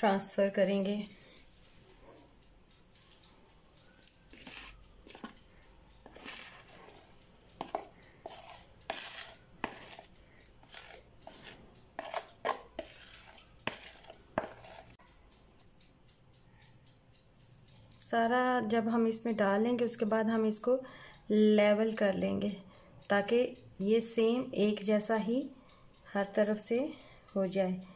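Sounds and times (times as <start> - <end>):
metal utensil scraping bowl: 4.0 - 15.0.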